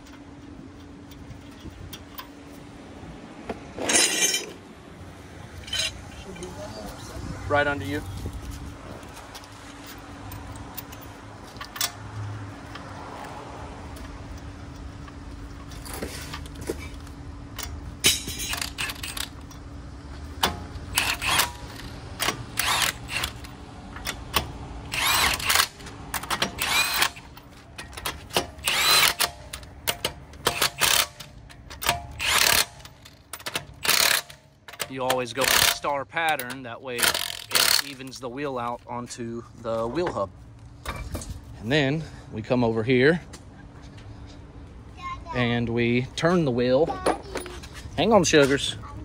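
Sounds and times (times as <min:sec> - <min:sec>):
impact wrench bursts: 0:03.8 - 0:04.6, 0:17.6 - 0:19.4, 0:20.4 - 0:27.4, 0:28.0 - 0:38.2.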